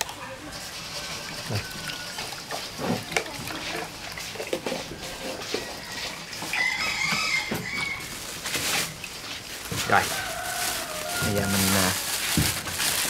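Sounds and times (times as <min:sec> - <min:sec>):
water splashing and clatter: 0:00.0 - 0:13.0
rooster crowing: 0:00.2 - 0:02.4, 0:05.2 - 0:08.2, 0:09.8 - 0:12.1.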